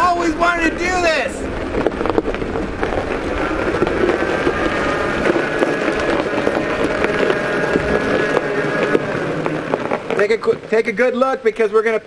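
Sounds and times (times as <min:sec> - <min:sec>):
tyres crunching on gravel: 0:00.0 - 0:12.0
electric motor whine: 0:01.4 - 0:10.7.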